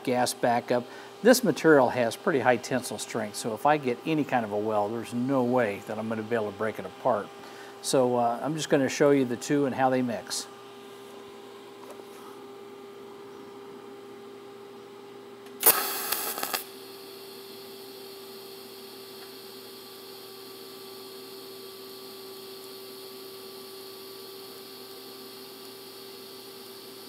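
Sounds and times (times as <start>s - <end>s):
background hum: 0.0s - 27.0s
welding arc crackling: 15.6s - 17.2s, 18.8s - 27.0s
welding arc hissing: 15.6s - 27.0s.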